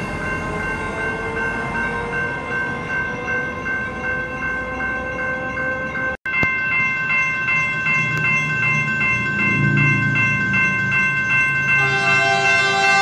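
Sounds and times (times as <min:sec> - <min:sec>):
crossing warning bell ringing: 0:00.0 - 0:13.0
low rumble: 0:08.5 - 0:11.0.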